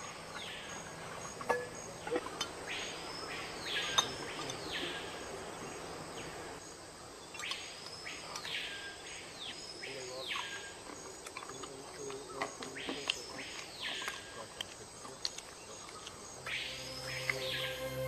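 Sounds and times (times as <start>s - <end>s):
insects buzzing: 0.0s - 18.0s
buzzy wildlife calls: 15.6s - 18.0s.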